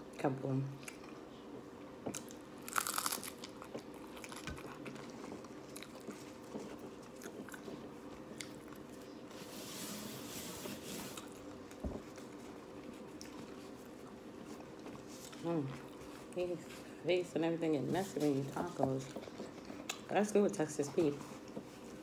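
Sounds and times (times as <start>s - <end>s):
faint steady hum: 0.0s - 22.0s
chewing with crunches: 0.8s - 9.3s, 11.1s - 16.9s, 18.0s - 20.2s
biting into crunchy taco: 2.1s - 8.9s
paper napkin rustling: 9.3s - 11.4s.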